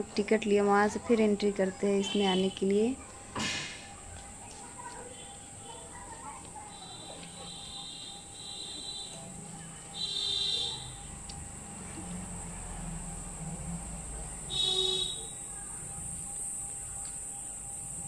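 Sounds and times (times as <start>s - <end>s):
high insect buzz: 6.6s - 18.0s.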